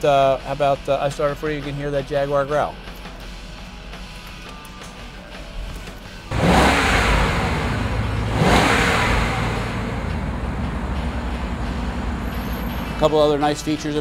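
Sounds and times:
car engine starting and idling: 6.3 - 14.0.

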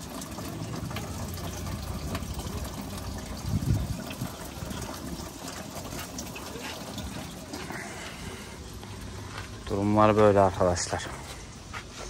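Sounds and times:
liquid splashing into a bucket: 0.0 - 9.6.

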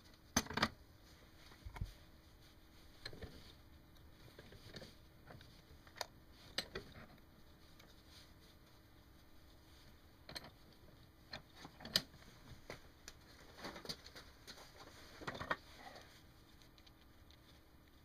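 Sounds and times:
clothing rustling: 1.0 - 10.1
small parts clicking and tapping: 10.2 - 12.2, 13.0 - 18.0.

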